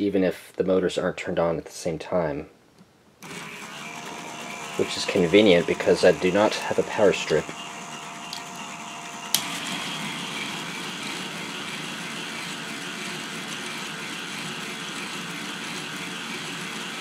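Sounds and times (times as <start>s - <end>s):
motorized plastic gears whirring: 3.2s - 17.0s
motor switch click: 8.3s - 8.7s.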